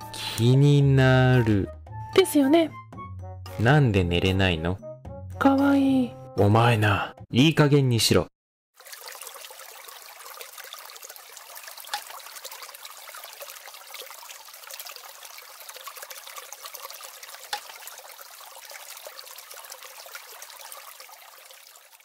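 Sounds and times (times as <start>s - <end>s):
water trickling: 8.8s - 22.0s.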